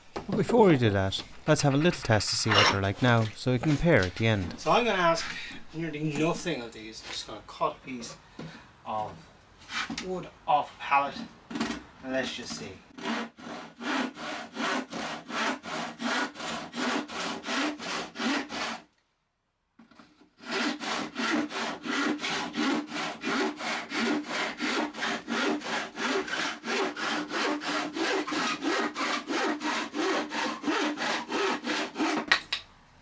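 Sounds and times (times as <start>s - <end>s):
hand saw cutting wood: 9.6s - 10.1s, 12.9s - 18.9s, 19.8s - 32.6s.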